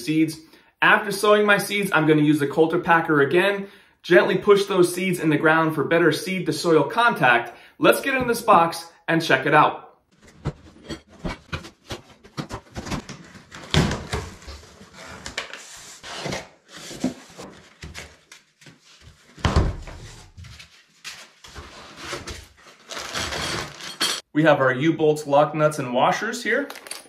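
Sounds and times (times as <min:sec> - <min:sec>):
cardboard rustling and scraping: 0:10.2 - 0:24.1.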